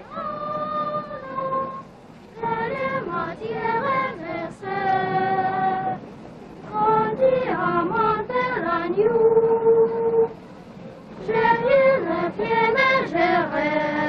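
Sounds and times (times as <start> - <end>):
high-pitched singing: 6.7 - 10.4.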